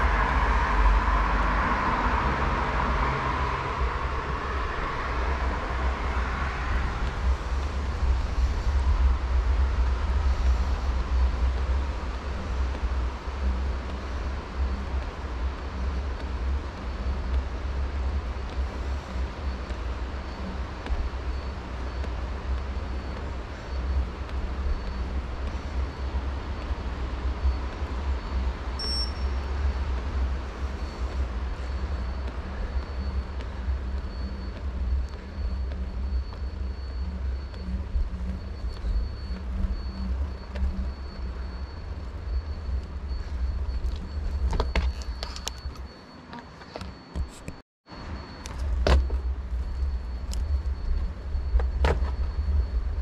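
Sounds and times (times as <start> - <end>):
wind rumbling on microphone: 0.0 - 45.9, 46.8 - 53.0
faint high tone: 28.8 - 29.4.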